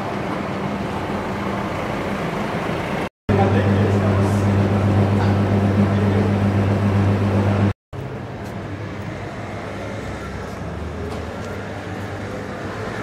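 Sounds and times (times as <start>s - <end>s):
street ambience: 0.0s - 13.0s
low engine hum: 3.3s - 7.8s.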